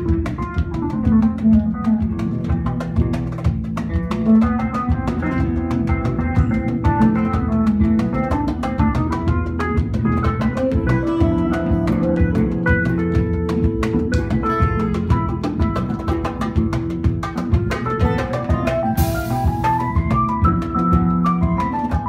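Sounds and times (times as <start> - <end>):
drum kit beat: 0.0 - 22.0
guitars: 0.0 - 22.0
keyboard: 0.0 - 22.0
oud melody: 4.2 - 22.0
violin melody: 10.7 - 15.9.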